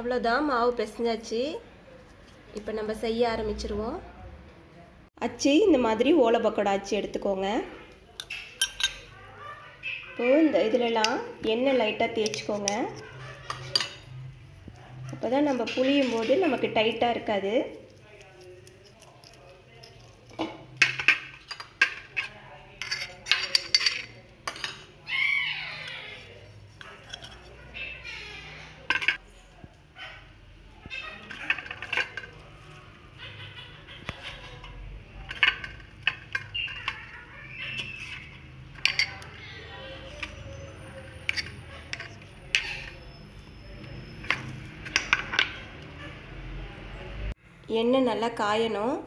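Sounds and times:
metal utensils clicking and knocking: 8.0 - 9.1, 10.7 - 17.2, 17.8 - 25.0, 26.2 - 27.6, 28.8 - 29.2, 31.1 - 32.8, 34.1 - 39.4, 40.0 - 43.2, 43.8 - 46.0
steel kitchenware clinking: 8.1 - 9.2, 10.5 - 25.0, 26.1 - 28.0, 28.7 - 29.2, 31.1 - 32.9, 34.0 - 46.0
metal scraping: 25.8 - 29.2, 34.0 - 45.9.

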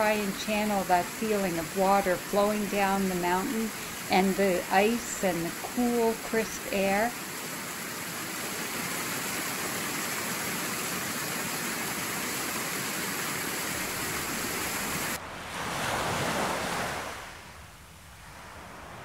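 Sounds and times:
waterfall rushing over rocks: 0.0 - 15.2
soft water rush: 0.0 - 19.0.

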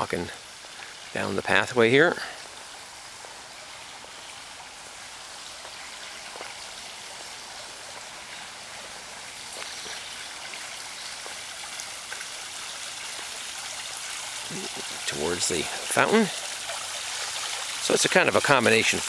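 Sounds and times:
small waterfall splashing over rocks: 0.0 - 19.0.

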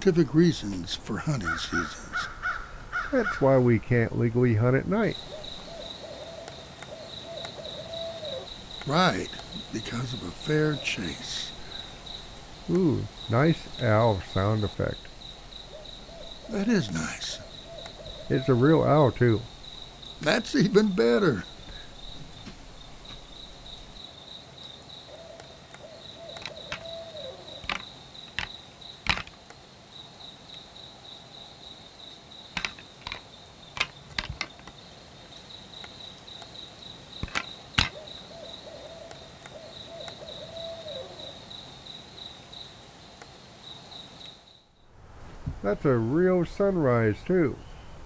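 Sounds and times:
crickets chirping: 0.0 - 48.0
owl hooting: 1.3 - 3.4, 5.0 - 14.9, 15.6 - 24.0, 25.0 - 28.5, 37.8 - 41.5
sharp clicks: 27.6 - 29.6.

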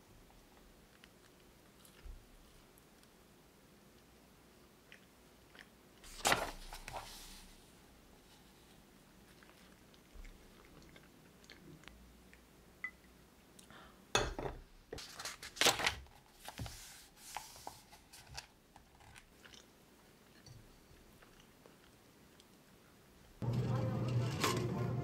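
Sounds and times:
book pages turning: 6.1 - 7.5, 15.0 - 19.2.

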